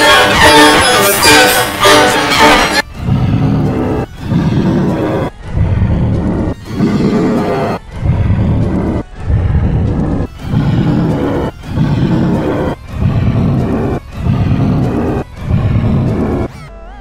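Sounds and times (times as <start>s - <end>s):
cartoon dragon roar: 3.0s - 16.5s.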